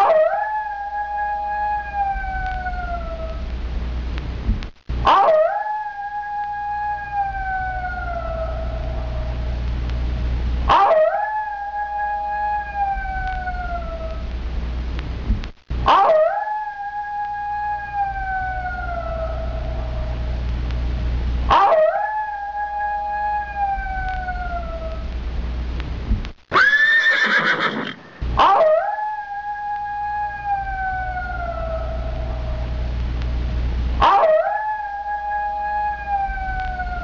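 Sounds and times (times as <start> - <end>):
dog howling: 0.0 - 3.5, 5.0 - 9.6, 10.7 - 14.3, 15.8 - 20.4, 21.5 - 25.1, 26.6 - 33.0, 34.0 - 37.0
low hum: 0.0 - 26.5, 28.0 - 37.0
dog crying: 5.1 - 9.4, 10.7 - 14.2, 15.9 - 20.1, 21.5 - 25.0, 26.6 - 32.7, 34.0 - 37.0.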